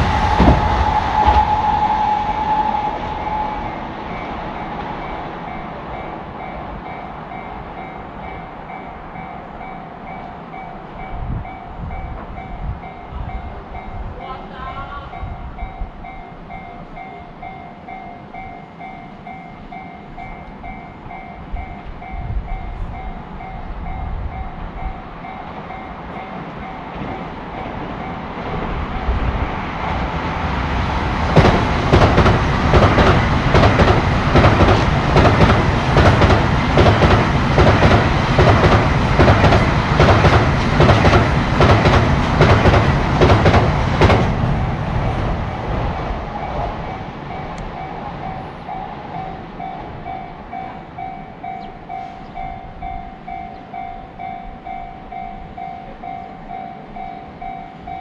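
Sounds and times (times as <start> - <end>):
train wheels clattering: 0.0 - 7.5, 18.4 - 54.0
train rumbling past: 0.0 - 58.0
level-crossing bell ringing: 15.1 - 27.3, 47.3 - 58.0.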